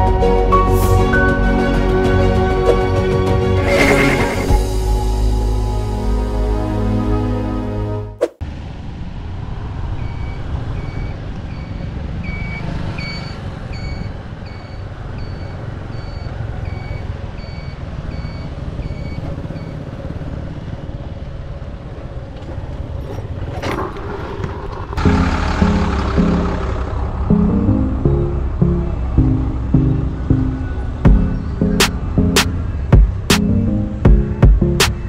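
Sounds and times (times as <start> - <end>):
motorcycle engine and wind rumble: 8.8 - 25.2.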